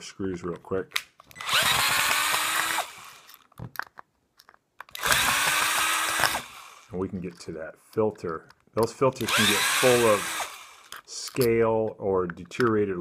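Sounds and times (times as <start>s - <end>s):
power drill-driver removing screws: 1.2s - 3.5s, 4.8s - 7.0s, 9.2s - 11.5s.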